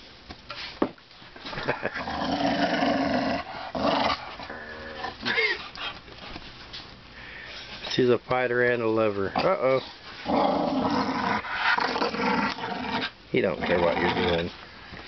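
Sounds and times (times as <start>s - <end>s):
dog growling in play: 1.6s - 5.8s, 10.2s - 14.5s
dog whining: 4.4s - 5.8s.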